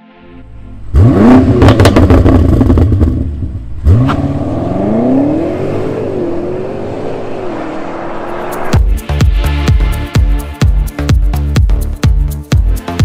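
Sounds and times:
car engine revving: 0.5s - 9.1s
car accelerating away: 0.8s - 8.8s
exhaust crackles: 0.8s - 8.8s.

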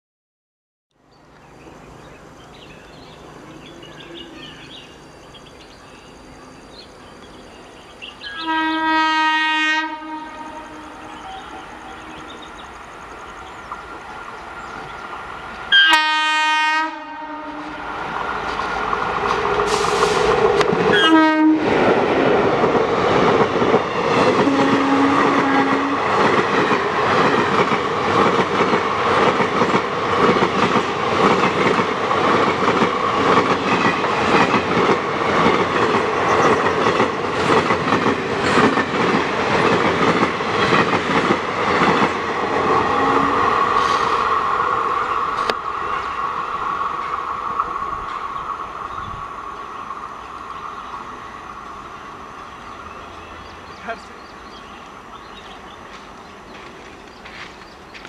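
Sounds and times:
locomotive horn: 8.3s - 12.4s, 15.7s - 17.9s, 20.9s - 21.8s, 24.4s - 26.1s, 42.8s - 44.0s
train wheels clicking over rail joints: 18.0s - 21.0s, 26.1s - 42.8s, 55.4s - 58.0s.

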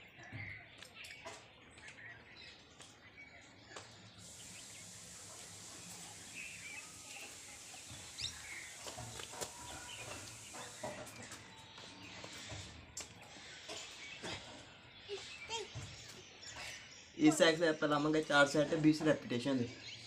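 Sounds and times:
birds chirping: 0.0s - 20.0s
steady hiss: 4.1s - 12.7s.

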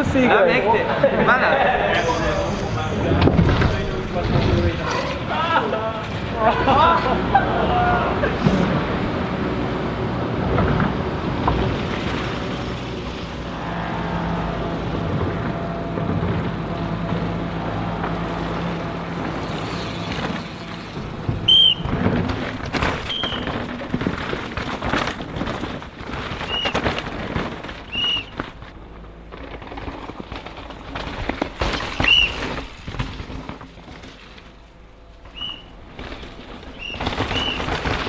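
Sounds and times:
mountain bikes on rocky trail: 0.0s - 8.8s, 10.4s - 38.0s
low steady hum: 0.9s - 38.0s
bike tyres knocking on rocks: 19.5s - 34.5s, 35.3s - 38.0s.

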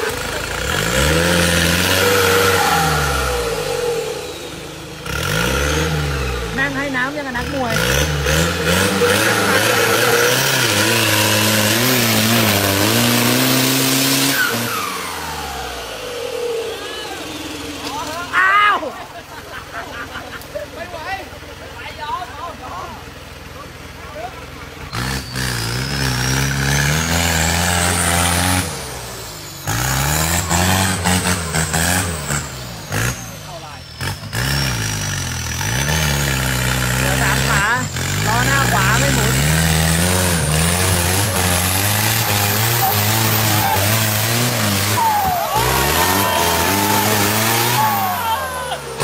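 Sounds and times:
engine revving hard: 0.0s - 19.0s, 24.8s - 49.0s
tyres spinning in mud: 36.8s - 49.0s.

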